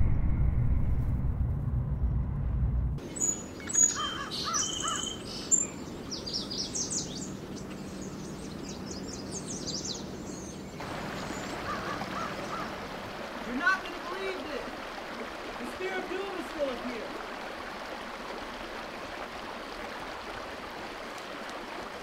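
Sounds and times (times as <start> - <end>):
low vehicle rumble: 0.0 - 3.0
birds chirping and singing: 3.0 - 12.7
soft outdoor hiss: 3.0 - 22.0.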